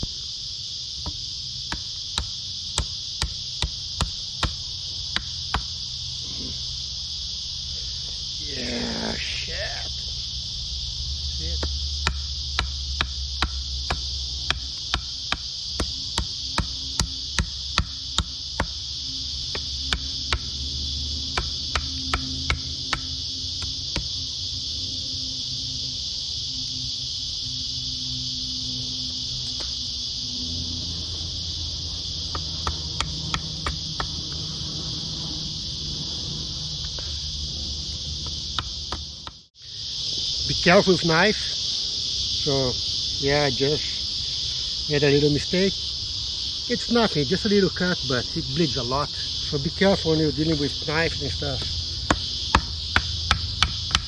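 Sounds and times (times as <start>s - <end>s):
high-pitched insect drone: 0.0s - 54.0s
hand tool knocking on wood: 11.6s - 18.8s, 21.3s - 23.1s, 52.1s - 54.0s.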